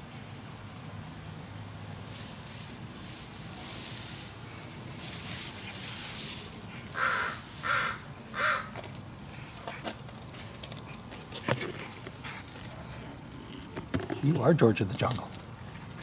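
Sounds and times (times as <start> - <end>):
crow cawing: 6.9 - 8.8.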